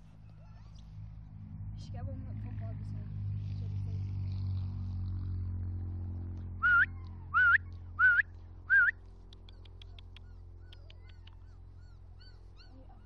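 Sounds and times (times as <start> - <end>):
low steady rumble: 0.0 - 13.0
person whistling rising notes: 6.6 - 8.9.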